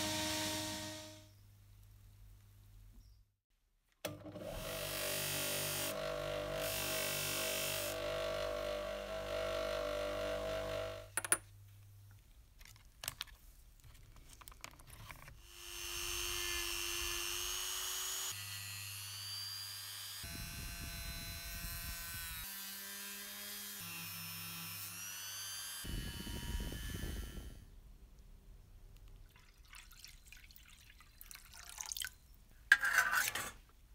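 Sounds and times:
rotary tool whining: 0:04.4 - 0:11.1
motor running: 0:04.6 - 0:11.1.

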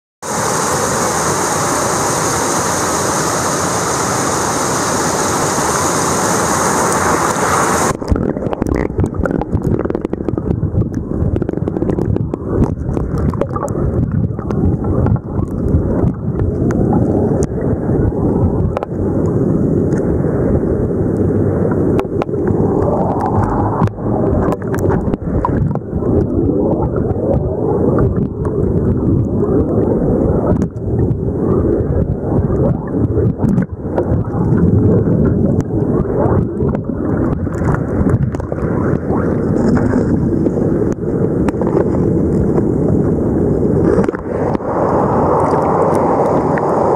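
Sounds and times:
river rushing over pebbles: 0:00.2 - 0:10.6, 0:22.0 - 0:28.7, 0:33.5 - 0:46.9
muffled underwater river flow: 0:00.2 - 0:46.9
bubbles clicking underwater: 0:07.9 - 0:20.1, 0:20.8 - 0:46.8.

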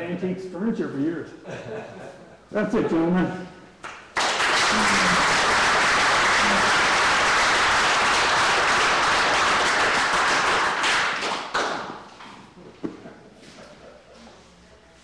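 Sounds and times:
audience applauding: 0:03.8 - 0:12.1.

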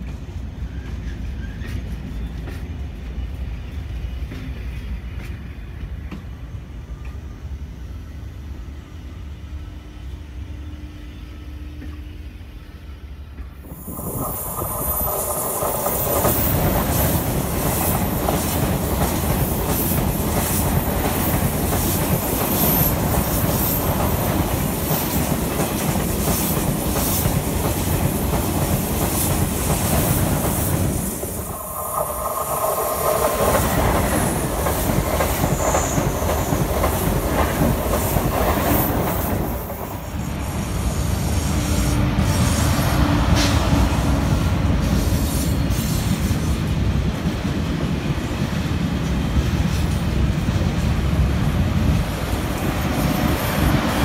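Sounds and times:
rail clicks: 0:00.0 - 0:03.3, 0:13.3 - 0:40.4
train pulling away rumble: 0:00.0 - 0:48.4
high-speed train passing: 0:00.0 - 0:54.0.

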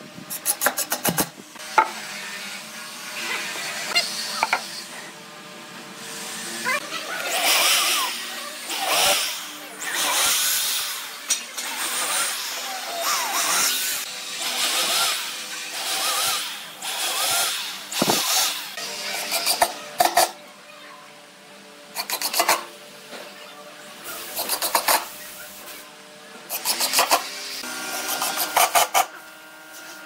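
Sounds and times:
electric drill boring into wood: 0:06.0 - 0:19.7.

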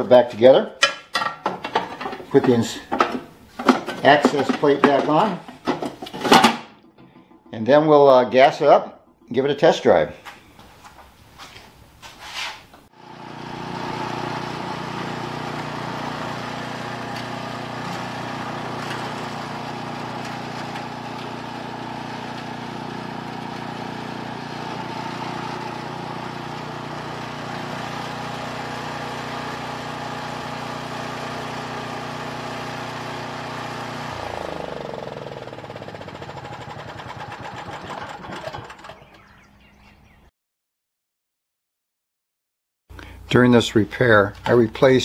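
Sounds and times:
snowblower engine running: 0:01.9 - 0:06.4, 0:12.9 - 0:39.3.

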